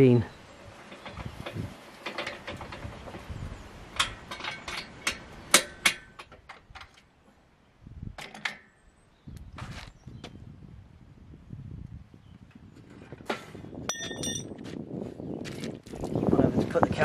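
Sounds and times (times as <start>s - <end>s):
rustle: 0.0s - 10.4s
metal clinks and knocks: 13.9s - 14.6s.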